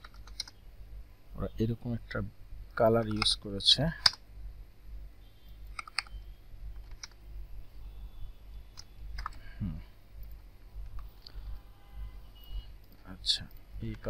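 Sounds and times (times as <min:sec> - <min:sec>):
computer mouse clicks: 0:00.0 - 0:00.6, 0:05.7 - 0:06.2, 0:06.8 - 0:07.2, 0:08.8 - 0:09.4
steady low hum: 0:00.0 - 0:14.0.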